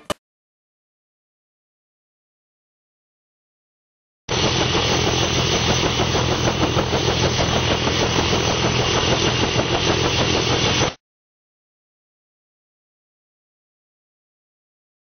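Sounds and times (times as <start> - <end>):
helicopter engine: 4.3 - 11.0
rotor blades beating: 4.3 - 11.0.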